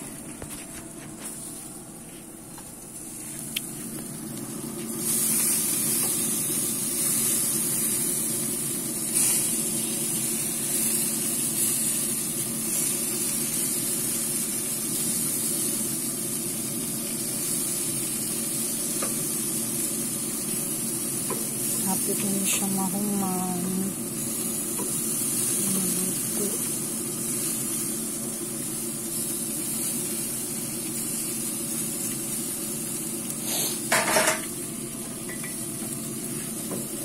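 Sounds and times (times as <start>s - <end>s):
steaks sizzling on a grill: 3.0s - 37.0s.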